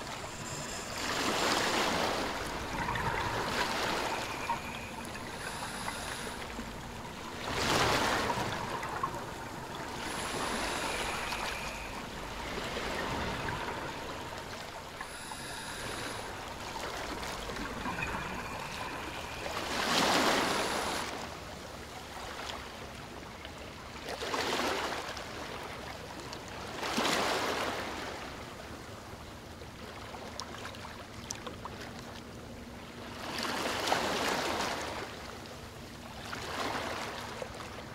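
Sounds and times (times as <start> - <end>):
regulator bubbles rushing: 0.0 - 21.2
underwater water hiss: 0.0 - 21.3.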